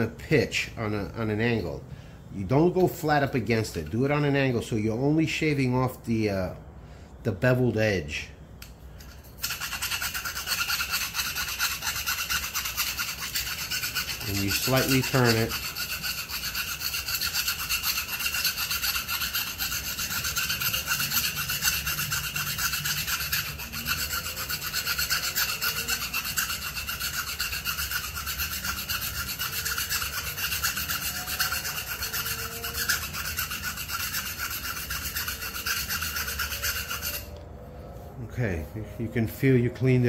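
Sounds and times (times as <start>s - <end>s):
hand file rasping on metal: 9.1s - 37.4s.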